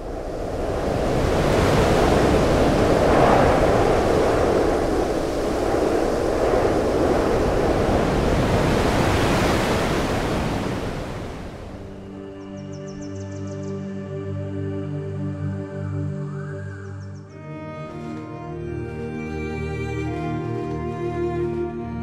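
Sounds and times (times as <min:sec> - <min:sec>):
wind-like rushing noise: 0:00.0 - 0:12.3.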